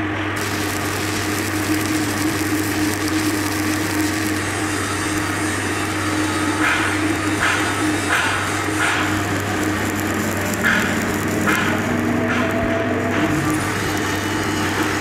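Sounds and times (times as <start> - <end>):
low hum: 0.3 - 15.0
welding arc crackling and sizzling: 0.4 - 15.0.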